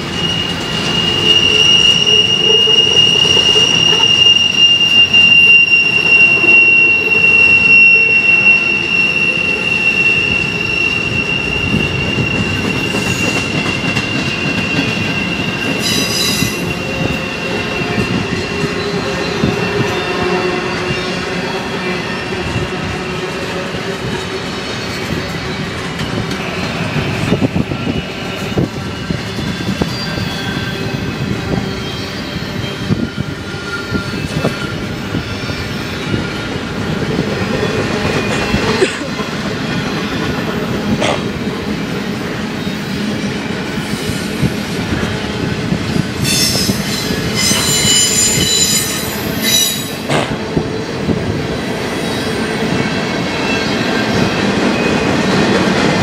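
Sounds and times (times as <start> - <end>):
freight train cars rumbling: 0.0 - 56.0
train wheels squealing: 0.0 - 56.0.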